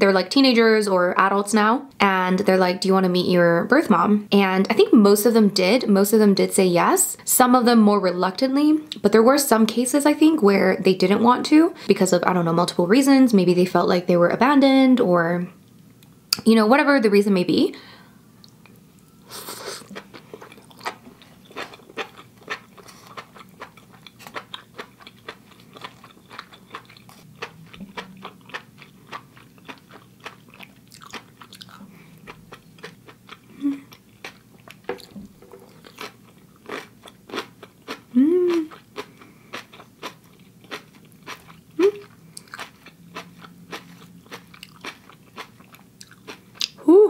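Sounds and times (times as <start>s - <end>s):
person chewing: 18.4s - 46.8s
person humming: 33.6s - 33.9s, 38.1s - 38.7s, 41.8s - 42.0s.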